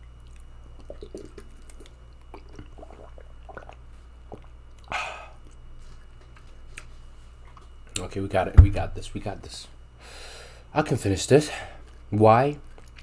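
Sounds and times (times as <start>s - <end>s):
person gulping water: 0.3s - 5.6s.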